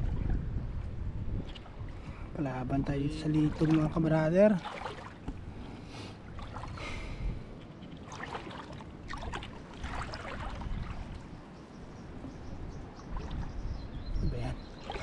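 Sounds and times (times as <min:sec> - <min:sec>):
steady low rumble: 0:00.0 - 0:04.4
seawater sloshing from wading: 0:00.0 - 0:15.0.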